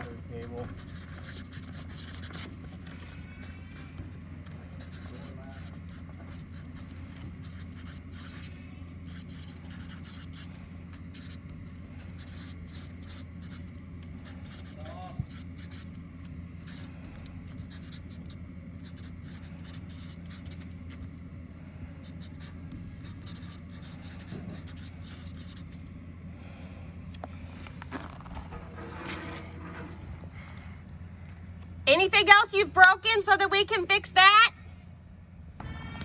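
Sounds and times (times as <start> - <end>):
marker scratching on cardboard: 0.3 - 21.2, 21.9 - 25.9.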